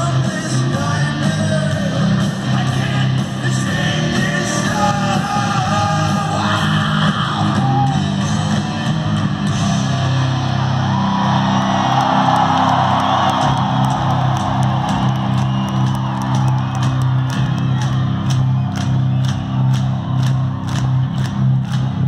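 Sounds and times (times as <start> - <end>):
person singing: 0.0 - 8.0
hard rock band playing live: 0.0 - 19.7.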